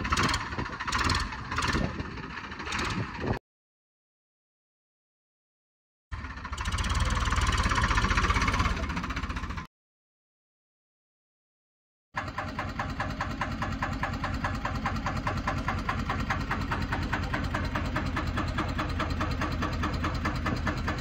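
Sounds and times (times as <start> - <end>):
diesel engine idling: 0.0 - 3.4, 6.2 - 9.7, 12.2 - 21.0.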